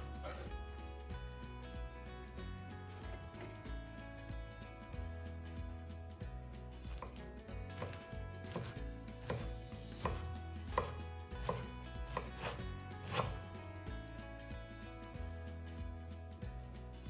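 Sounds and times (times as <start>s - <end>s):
knife chopping on wooden board: 0.0s - 0.5s, 6.9s - 13.4s.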